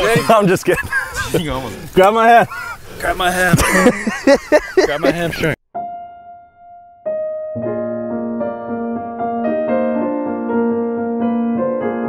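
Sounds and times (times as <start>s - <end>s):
keyboard melody: 5.7s - 12.0s.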